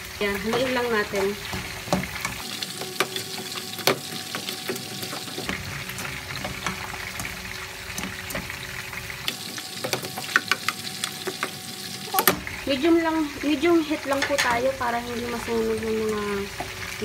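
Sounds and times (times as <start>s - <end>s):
food sizzling in a pan: 0.0s - 17.0s
spatula scraping and tapping pan: 0.4s - 8.6s, 9.3s - 11.6s.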